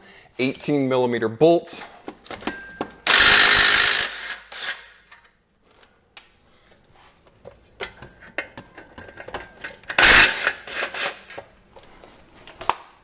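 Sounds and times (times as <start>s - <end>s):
wrench loosening bolt burst: 3.0s - 5.2s, 9.9s - 11.4s.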